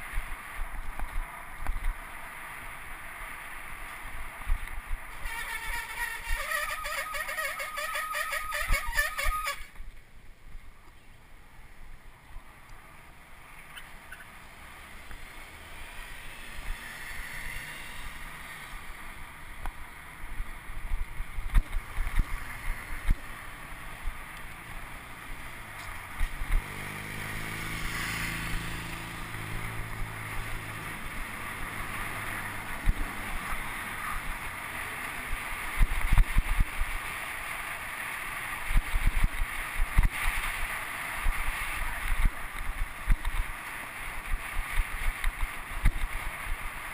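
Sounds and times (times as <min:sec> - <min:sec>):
bicycle road noise: 0:00.0 - 0:46.9
motor vehicle engine running: 0:14.0 - 0:46.9.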